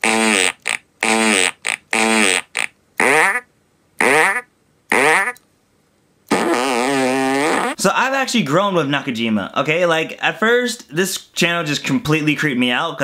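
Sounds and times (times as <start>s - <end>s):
fart sound effects: 0.0s - 3.4s, 4.0s - 5.4s, 6.3s - 7.8s.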